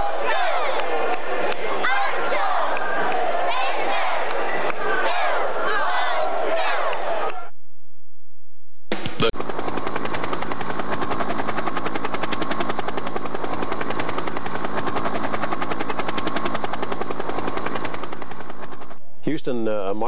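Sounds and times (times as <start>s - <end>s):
helicopter rotor chopping: 8.9s - 19.0s
helicopter engine drone: 9.3s - 19.2s.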